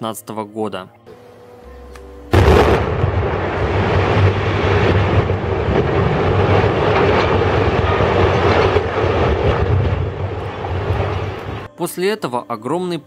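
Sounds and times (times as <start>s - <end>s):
rumble of falling concrete: 2.4s - 11.7s.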